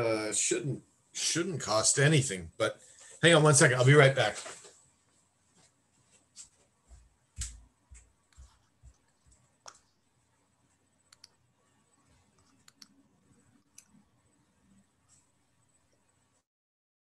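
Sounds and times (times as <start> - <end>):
faint footsteps: 4.2 - 10.0
faint clicks: 11.1 - 11.4, 12.4 - 13.0.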